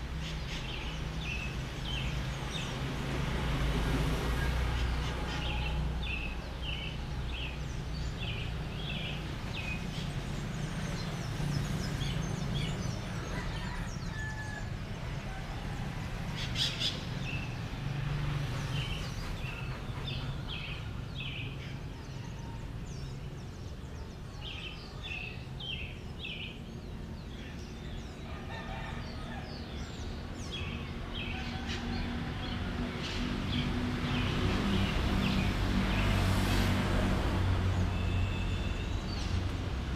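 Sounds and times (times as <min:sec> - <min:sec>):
roosters crowing: 0:13.0 - 0:16.2, 0:28.2 - 0:29.7.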